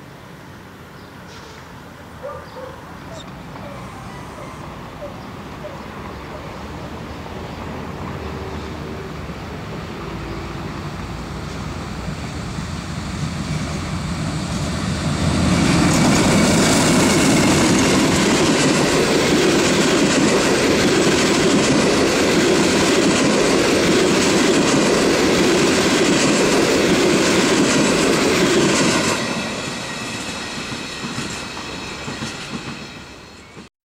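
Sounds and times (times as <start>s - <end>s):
passenger train passing: 0.0s - 33.7s
train wheels on rails: 6.7s - 33.7s.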